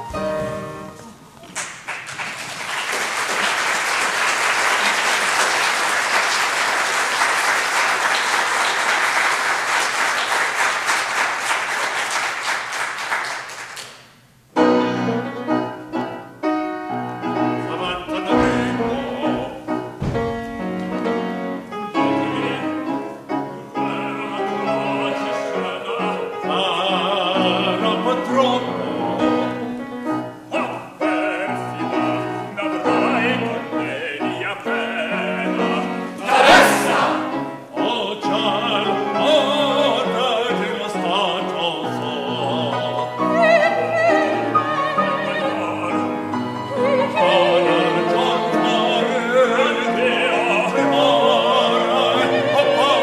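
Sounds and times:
piano playing: 0:00.0 - 0:01.4, 0:14.5 - 0:53.0
audience applauding: 0:01.4 - 0:14.1, 0:36.2 - 0:37.3
operatic singing voice: 0:23.8 - 0:29.0, 0:30.5 - 0:53.0.

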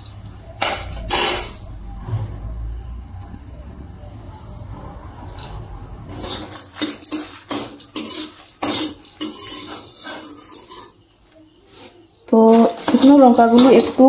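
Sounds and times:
metal spoon scraping metal pan: 0:00.0 - 0:01.8, 0:05.3 - 0:14.0
low steady rumble: 0:00.3 - 0:06.5.

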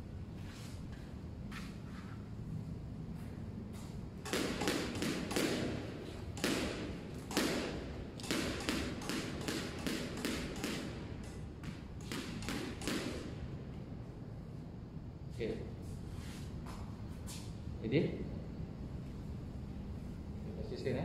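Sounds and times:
squash racket striking ball: 0:06.4 - 0:10.9.

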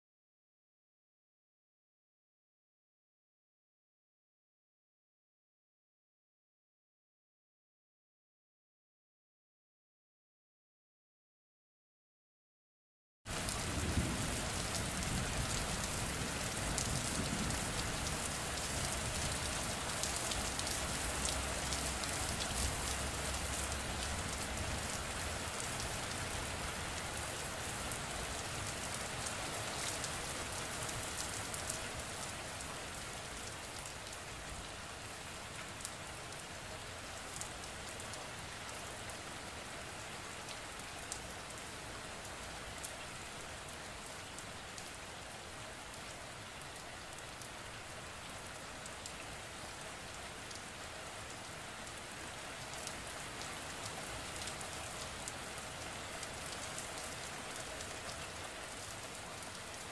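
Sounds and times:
steady rain: 0:13.3 - 0:59.9.

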